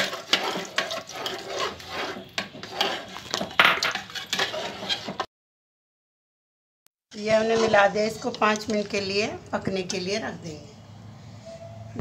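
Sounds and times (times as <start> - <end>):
ladle scraping a pot: 0.0 - 5.3, 7.2 - 10.1.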